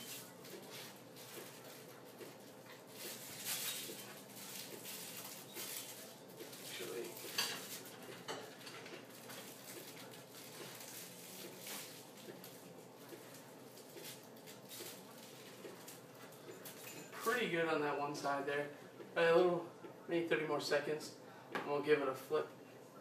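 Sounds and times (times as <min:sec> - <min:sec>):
dishes and utensils clattering: 0:07.1 - 0:09.5, 0:16.4 - 0:17.2.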